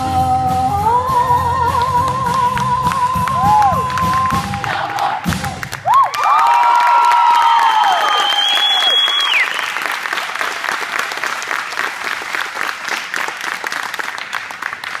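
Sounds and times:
audience applause and cheers: 0:02.3 - 0:15.0
choir singing high note: 0:04.4 - 0:05.4.

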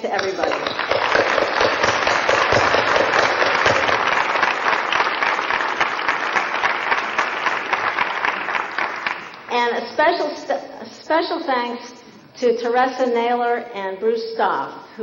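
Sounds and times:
audience applauding: 0:00.2 - 0:09.5.

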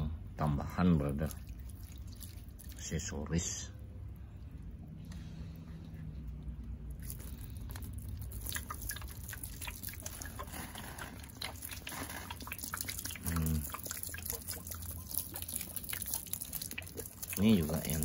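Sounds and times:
small splashes and drips: 0:00.3 - 0:18.0
water spattering onto soil: 0:01.0 - 0:03.2, 0:06.9 - 0:18.0.

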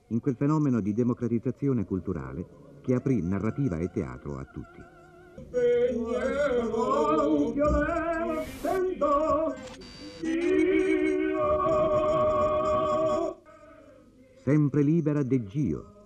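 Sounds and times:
operatic singing with vibrato: 0:02.1 - 0:14.5.

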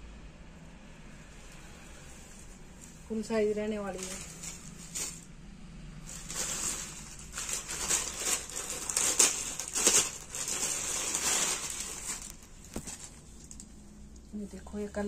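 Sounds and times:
plastic packet crinkling: 0:03.8 - 0:05.3, 0:06.0 - 0:13.8.

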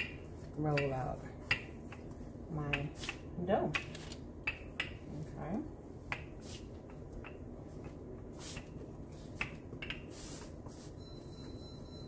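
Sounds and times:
parchment paper rustling: 0:03.8 - 0:04.3, 0:07.8 - 0:11.0.

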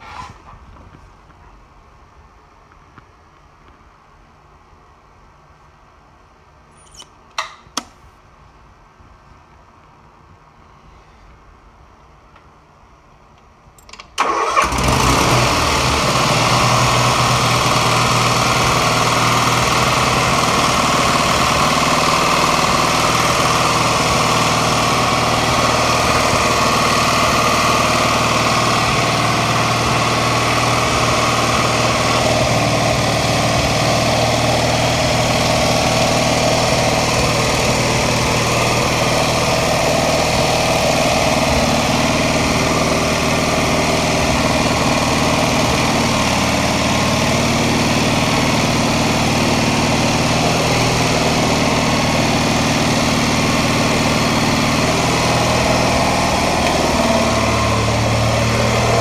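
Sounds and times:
engine running steadily: 0:14.2 - 0:59.0.

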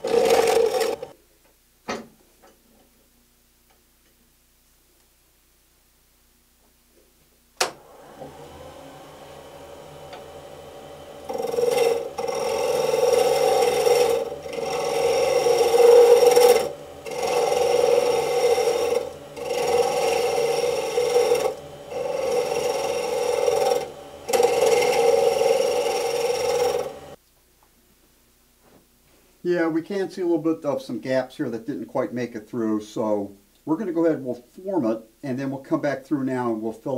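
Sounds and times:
gouge rasping on spinning wood: 0:00.0 - 0:01.1, 0:08.9 - 0:27.2
lathe motor humming: 0:00.0 - 0:01.1, 0:07.8 - 0:27.2.

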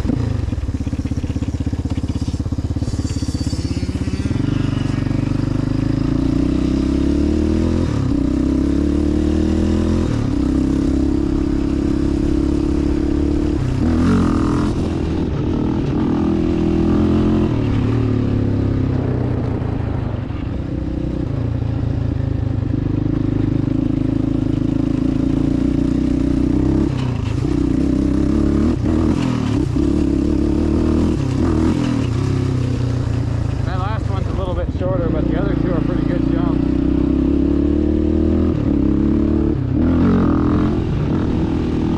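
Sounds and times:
engine revving while riding: 0:00.0 - 0:41.9.

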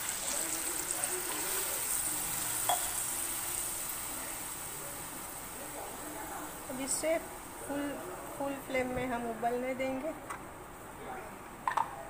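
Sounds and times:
oil sizzling and spitting: 0:00.0 - 0:07.6.

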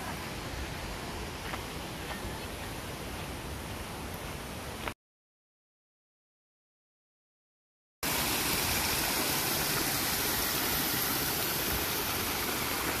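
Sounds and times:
creek water flowing over rocks: 0:08.0 - 0:13.0.

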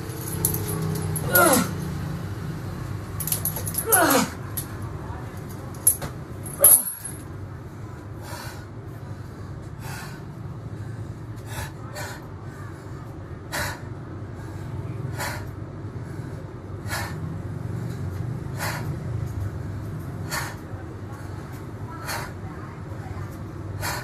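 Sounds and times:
man breathing forcefully: 0:00.0 - 0:01.8, 0:08.1 - 0:22.5, 0:23.6 - 0:24.0.

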